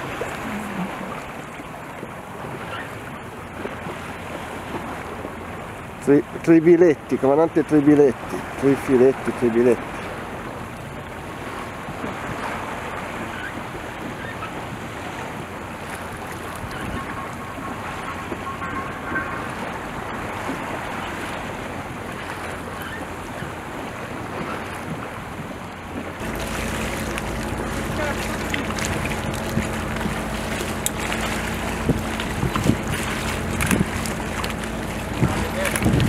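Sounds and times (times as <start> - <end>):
choppy sea water wash: 0.0 - 36.0
outboard motor idling: 0.0 - 36.0
wind buffeting microphone: 10.1 - 36.0.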